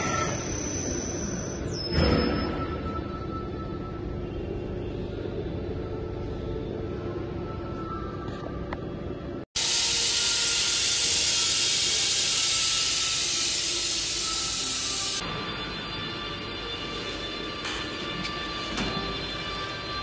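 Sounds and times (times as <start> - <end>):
coolant mist nozzle hissing: 9.6 - 15.2.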